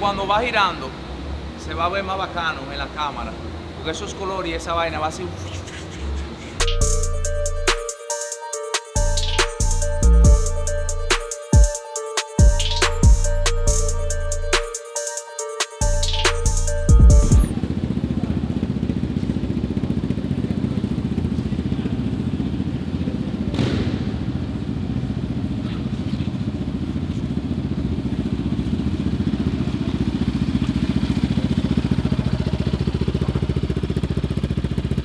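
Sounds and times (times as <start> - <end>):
quad engine running at low revs: 16.6 - 35.0.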